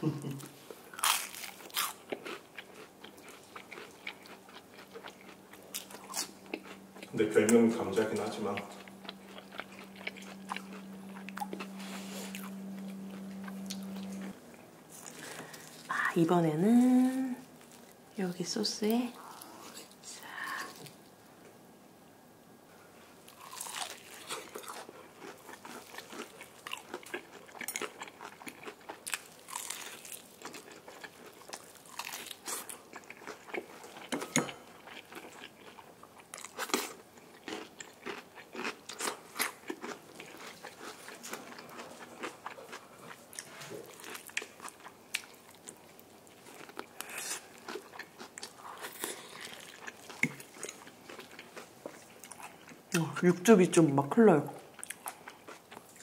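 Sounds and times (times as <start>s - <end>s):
chewing crunchy fried chicken: 0.3s - 15.9s, 23.3s - 53.0s, 54.6s - 56.0s.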